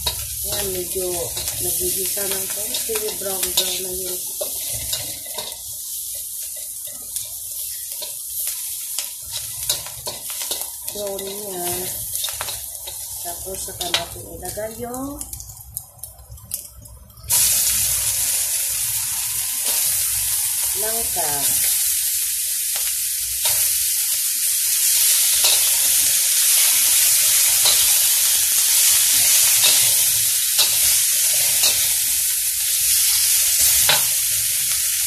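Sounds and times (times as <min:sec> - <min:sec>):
metal spatula scraping wok: 0:00.0 - 0:14.2, 0:24.9 - 0:34.1
food sizzling in hot oil: 0:00.0 - 0:35.0.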